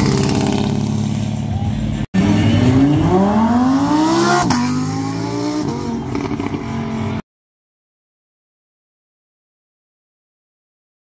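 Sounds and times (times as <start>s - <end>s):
car engine accelerating: 0.0s - 7.2s.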